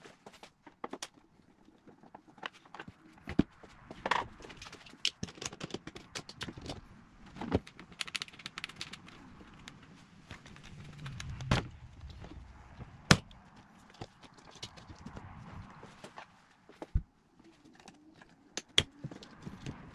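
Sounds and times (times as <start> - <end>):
tools clicking on plastic parts: 4.0 - 6.8, 7.4 - 9.8.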